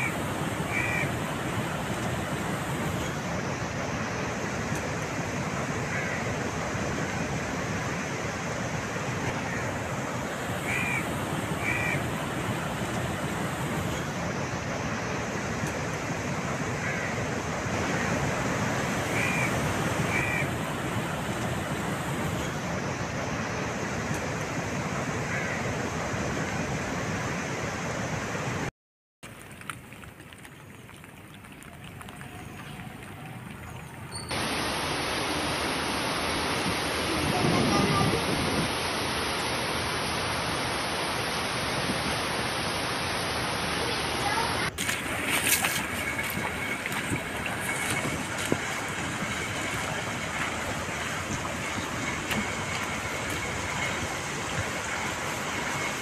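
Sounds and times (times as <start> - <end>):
heavy rain: 0.0 - 26.0, 29.2 - 56.0
crow cawing: 0.7 - 1.1, 5.9 - 6.2, 10.6 - 11.0, 11.6 - 12.0, 16.8 - 17.2, 25.3 - 25.6
steady rushing noise: 34.3 - 56.0.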